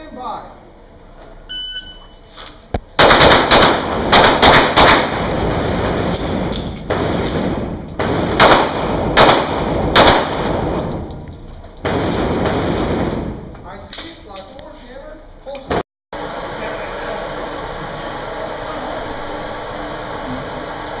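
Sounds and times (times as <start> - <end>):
pistol shots echoing indoors: 3.0 - 11.2, 11.8 - 13.4.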